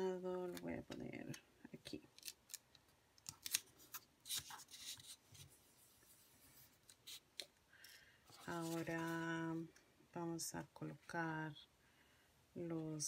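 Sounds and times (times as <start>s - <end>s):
paper rustling and rubbing: 3.4s - 7.2s, 8.3s - 9.4s.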